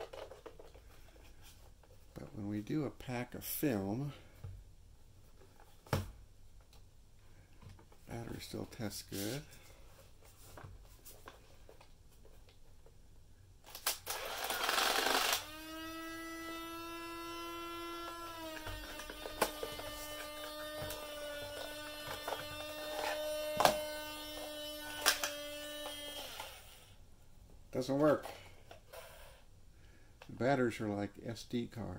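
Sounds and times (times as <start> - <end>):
scraping rustle of handling: 8.1 - 11.7
camera motor whirring: 14.0 - 27.0.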